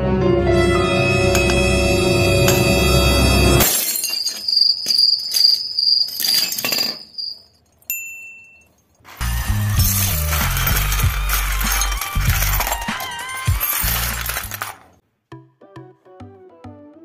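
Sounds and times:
music: 0.0s - 3.6s, 9.2s - 14.7s, 15.3s - 17.0s
hammer striking glass bottle: 1.3s - 1.7s
bright chime: 1.3s - 3.6s
glass breaking: 3.6s - 7.9s, 8.6s - 15.0s.

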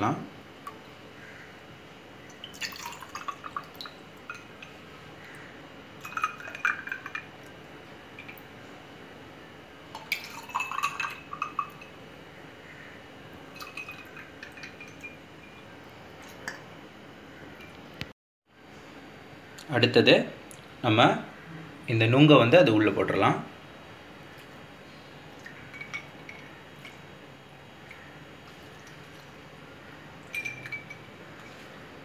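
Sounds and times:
milk pouring and splashing: 2.3s - 4.7s, 27.8s - 29.6s
ice clinking against glass: 6.0s - 7.3s, 10.0s - 11.9s, 13.6s - 15.6s, 25.7s - 27.0s, 30.3s - 31.1s
plastic ladle clinking glass: 30.3s - 31.0s.

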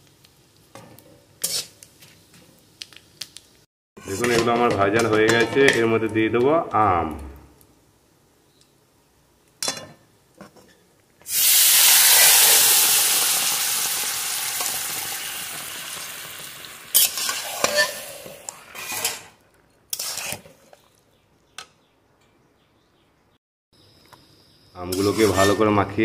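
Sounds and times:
loud sizzle in hot oil: 0.0s - 3.6s, 11.3s - 18.5s
metal spatulas scraping pan: 1.4s - 1.8s, 17.0s - 20.8s, 24.9s - 25.8s.

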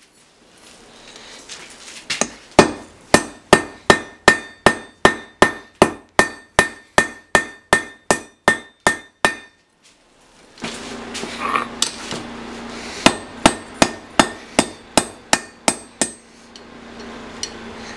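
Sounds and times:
hammer striking steel on anvil: 2.2s - 9.6s, 13.0s - 17.6s.

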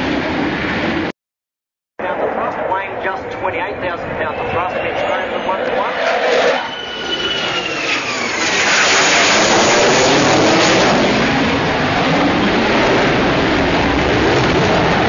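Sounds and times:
falling jet whine: 0.0s - 1.1s, 2.0s - 15.0s
jet engine roar: 0.0s - 1.1s, 2.0s - 15.0s.

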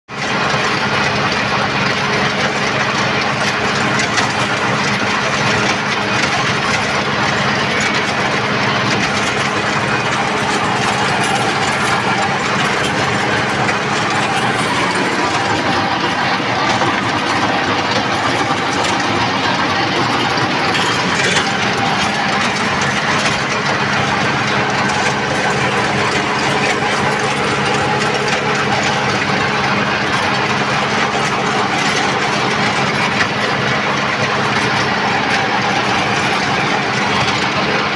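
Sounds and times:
tractor diesel engine running: 0.1s - 37.9s.

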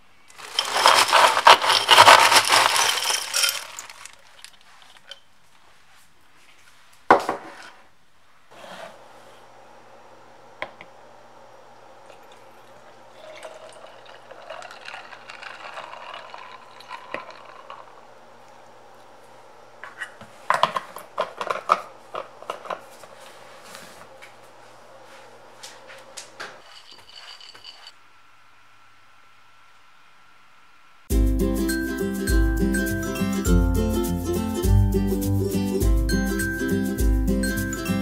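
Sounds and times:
faint steady hum: 0.0s - 31.1s
coffee pouring onto ice: 0.3s - 4.6s, 12.1s - 18.0s, 26.6s - 27.9s
ice cubes clattering: 0.3s - 5.2s, 13.2s - 18.0s, 26.6s - 27.9s.

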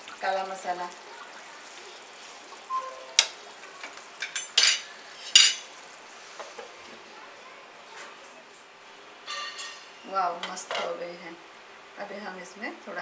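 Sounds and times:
curry sizzling in a pan: 0.0s - 12.3s
metal spoon clinking on pan: 4.2s - 5.7s.

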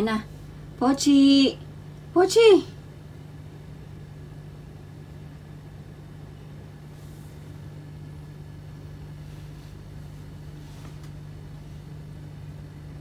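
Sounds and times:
low mechanical hum: 0.0s - 13.0s
soft rustles: 9.0s - 12.1s.

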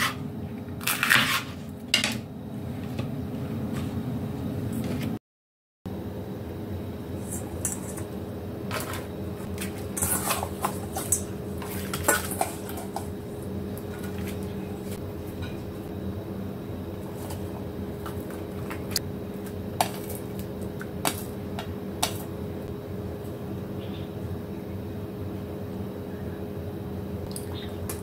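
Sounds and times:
metal bowl and pan clinking: 8.7s - 13.2s.

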